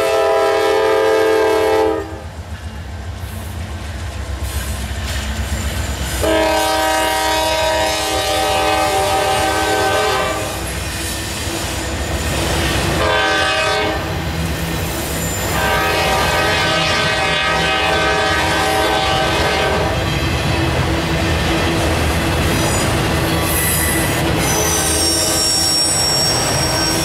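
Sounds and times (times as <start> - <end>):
locomotive air horn blasts: 0.0 - 2.2, 6.2 - 10.6, 12.9 - 14.1, 15.5 - 20.0
locomotive rumble: 0.0 - 27.0
train wheels rolling: 1.1 - 27.0.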